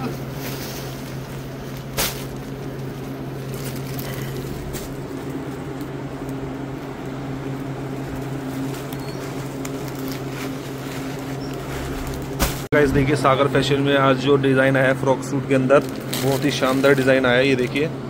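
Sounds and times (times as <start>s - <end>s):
plastic packets crackling: 0.0s - 12.7s, 15.5s - 17.6s
low hum: 0.0s - 14.0s.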